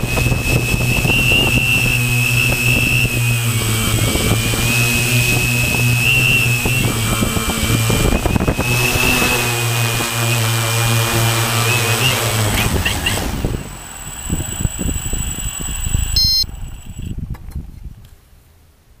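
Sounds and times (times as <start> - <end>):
drone propellers whirring: 0.0 - 17.2
gusty wind: 0.0 - 19.0
short electronic beep: 16.1 - 16.5.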